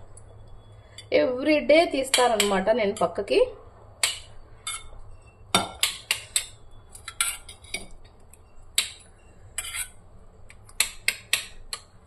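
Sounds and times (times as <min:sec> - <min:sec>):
spoon clinking against metal bowls: 0:02.0 - 0:03.2, 0:04.0 - 0:05.0, 0:05.6 - 0:08.0.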